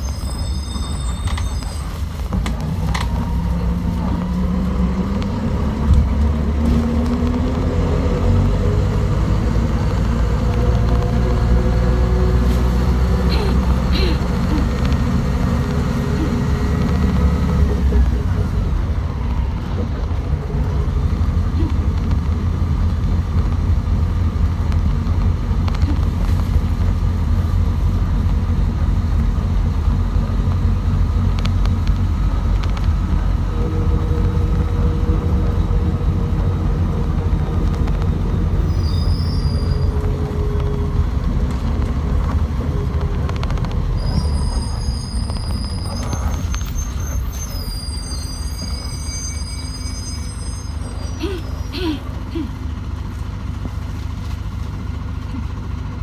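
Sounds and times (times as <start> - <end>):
high squeaks: 0.0 - 2.2, 43.9 - 51.9
bus engine and tyre rumble: 0.0 - 56.0.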